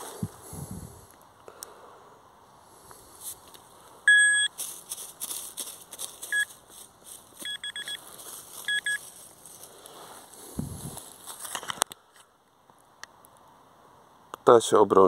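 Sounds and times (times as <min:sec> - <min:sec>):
dry leaves rustling: 0:03.0 - 0:11.8
metal detector beeping: 0:04.1 - 0:04.6, 0:06.3 - 0:06.6, 0:07.4 - 0:09.1.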